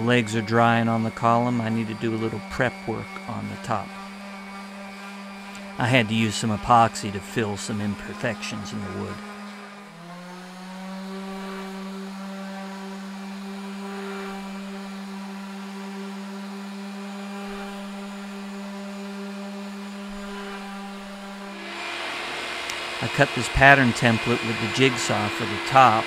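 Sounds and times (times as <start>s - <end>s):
orbital sander running: 0.0s - 26.0s.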